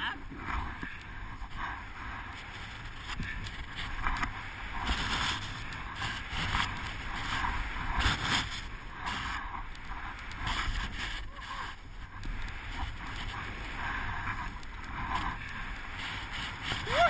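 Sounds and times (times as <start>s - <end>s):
wind buffeting microphone: 0.0s - 17.0s
skis hissing through snow: 3.8s - 17.0s.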